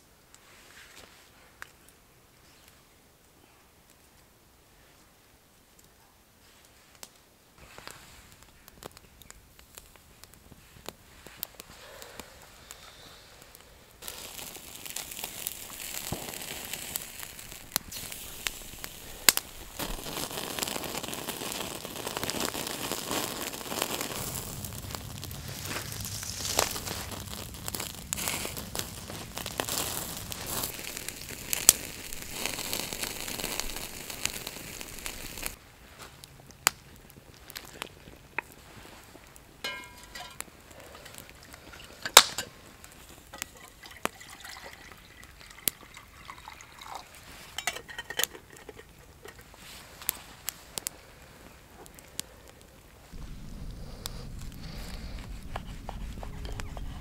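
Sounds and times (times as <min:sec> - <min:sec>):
wood fire crackling and popping: 0:06.9 - 0:57.0
steak sizzling on a grill: 0:14.0 - 0:35.6.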